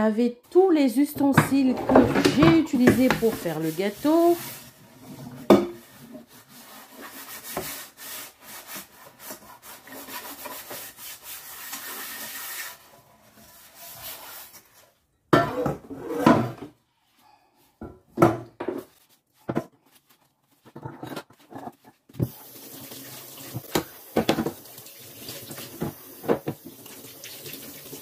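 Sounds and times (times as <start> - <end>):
cloth wiping a worktop: 3.0 - 4.8, 5.8 - 14.8
objects knocking on counter: 23.6 - 24.6, 25.8 - 26.6.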